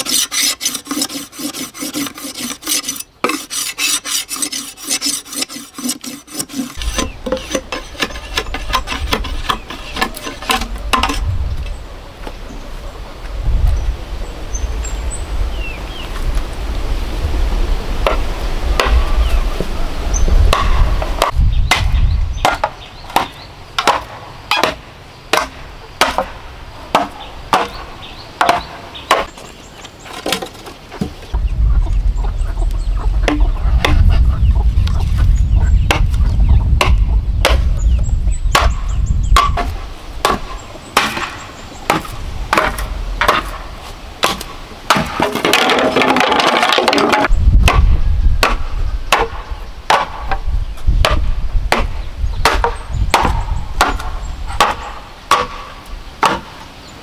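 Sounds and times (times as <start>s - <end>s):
machete chopping bamboo: 0.0s - 11.2s, 20.5s - 29.3s, 36.8s - 37.7s, 38.5s - 50.4s, 51.0s - 56.6s.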